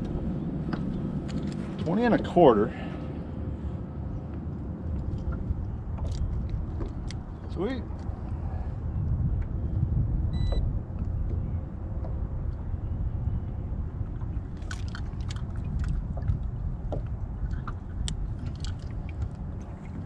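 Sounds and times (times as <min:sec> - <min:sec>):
boat engine low rumble: 0:00.0 - 0:20.0
short beep: 0:10.3 - 0:10.6.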